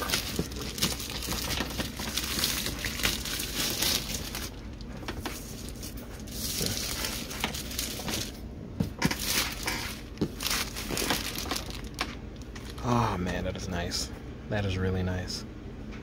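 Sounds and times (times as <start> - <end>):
plastic shrink wrap crinkling: 0.0 - 8.4, 9.0 - 12.9.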